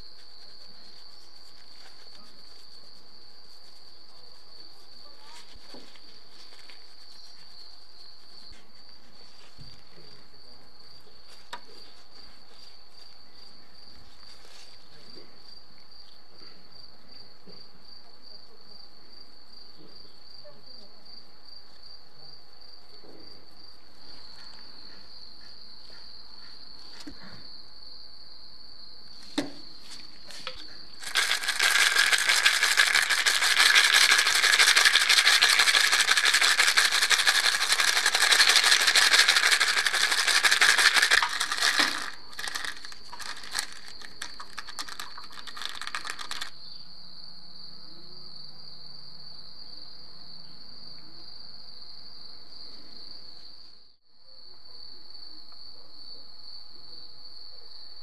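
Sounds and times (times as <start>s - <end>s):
metal nuts rattling in plastic cup: 30.3s - 46.6s.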